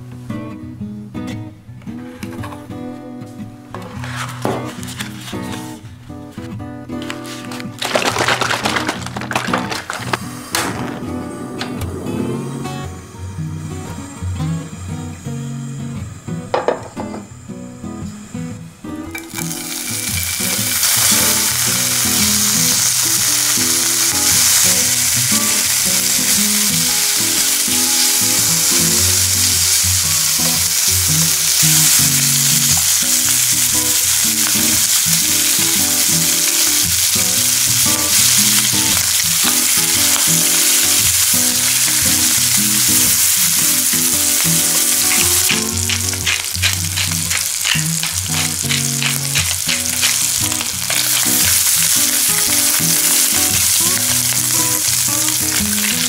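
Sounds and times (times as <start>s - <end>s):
bacon sizzling in a frying pan: 7.8s - 10.5s, 19.2s - 56.0s
soft background music: 10.4s - 56.0s.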